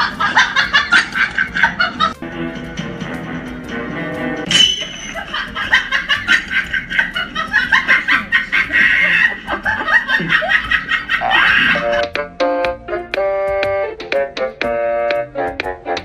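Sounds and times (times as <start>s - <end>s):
keyboard melody: 0.0s - 16.0s
high-pitched giggling: 4.9s - 12.0s.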